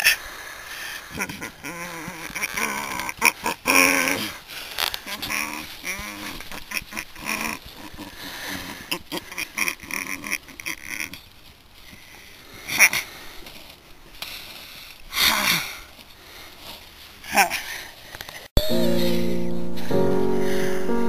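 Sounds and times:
person grunting and snorting: 1.1 - 4.4.

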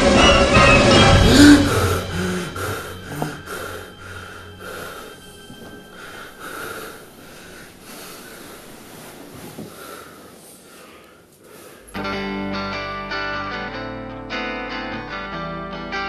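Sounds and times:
man panting: 0.8 - 9.0.

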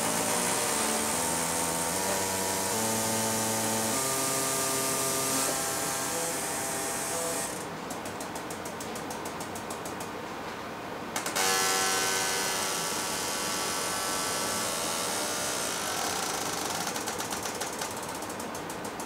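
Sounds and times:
air hiss: 0.0 - 7.6
fast even clicking: 16.9 - 19.0.

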